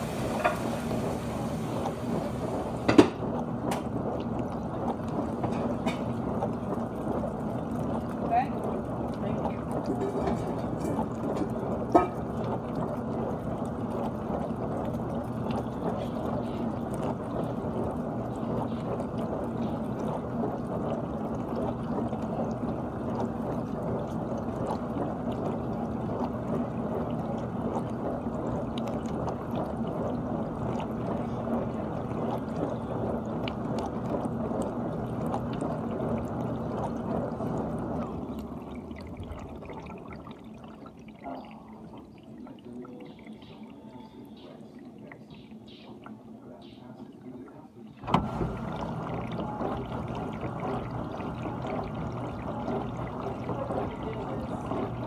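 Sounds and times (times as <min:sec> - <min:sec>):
water spraying and sloshing: 0:00.0 - 0:03.0
pump humming: 0:00.0 - 0:55.0.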